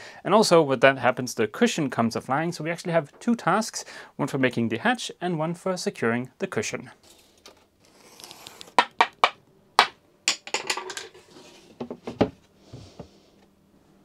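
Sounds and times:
plywood panels knocking: 8.8s - 11.0s
soft scraping: 11.2s - 11.9s.

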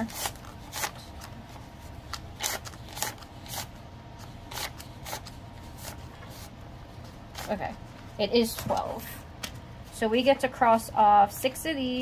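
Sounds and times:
paper bills rustling: 0.0s - 6.6s.

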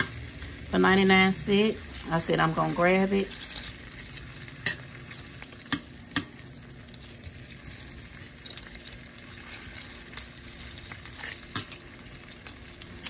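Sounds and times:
sausages sizzling in pan: 0.0s - 13.0s.

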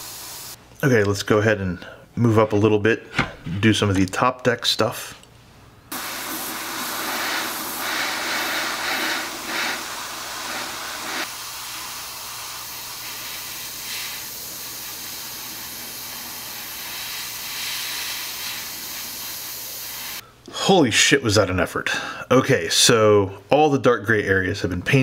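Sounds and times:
airbrush hissing: 0.0s - 0.6s, 5.9s - 20.2s.

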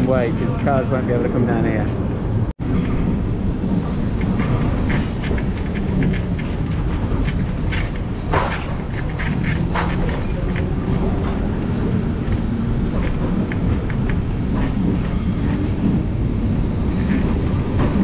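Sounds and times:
tram wheels rumbling on track: 0.0s - 18.0s
clicks and rattles: 4.2s - 16.0s.

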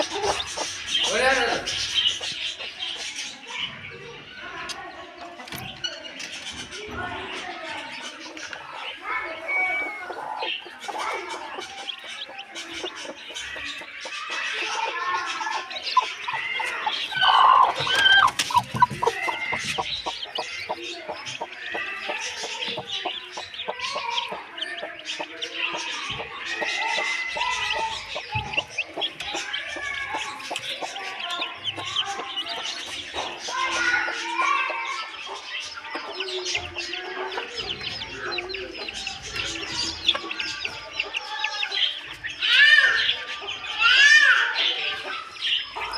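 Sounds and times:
hen clucking: 0.0s - 3.3s, 8.0s - 42.4s
chicks peeping: 0.0s - 45.9s.

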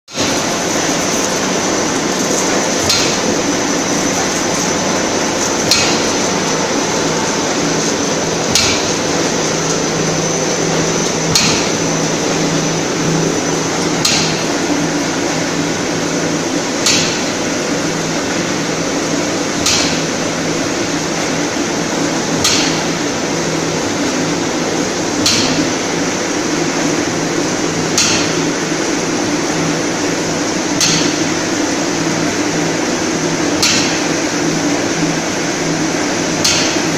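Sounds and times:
lathe running with high whine: 0.2s - 36.9s.

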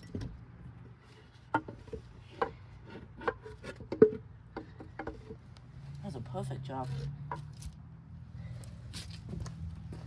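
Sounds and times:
scuffing on wood: 8.6s - 10.0s.

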